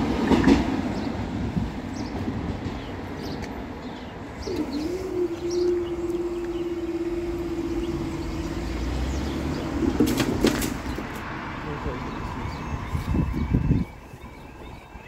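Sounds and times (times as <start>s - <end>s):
barrier motor whining: 4.4s - 10.1s.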